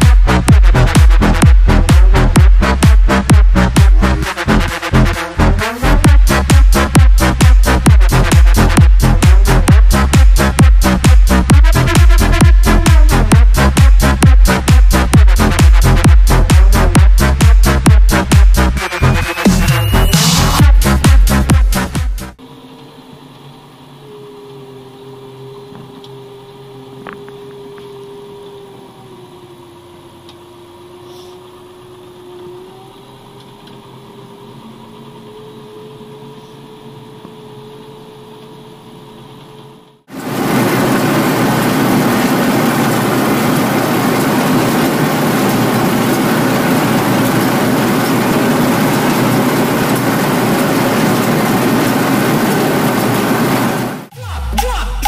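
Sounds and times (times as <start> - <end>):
tractor engine running: 0.0 - 22.4, 40.1 - 55.0
loud rushing noise: 40.1 - 55.0.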